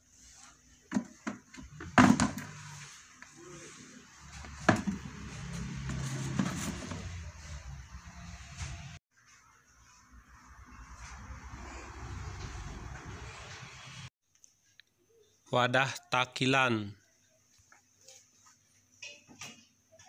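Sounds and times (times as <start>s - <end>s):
sharp knocks and clatters: 0.9s - 2.6s, 4.6s - 5.1s.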